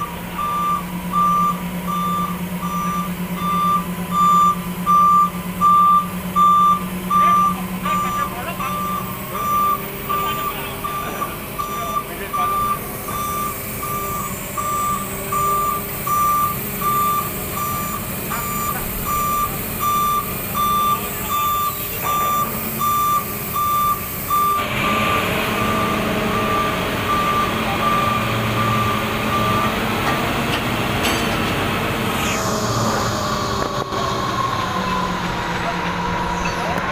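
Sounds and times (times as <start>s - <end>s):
diesel machine running: 0.0s - 36.9s
warning beeper short beeps: 0.4s - 24.6s.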